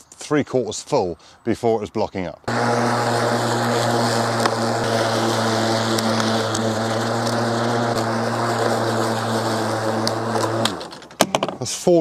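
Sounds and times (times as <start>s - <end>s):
lawn mower humming: 2.5s - 11.2s.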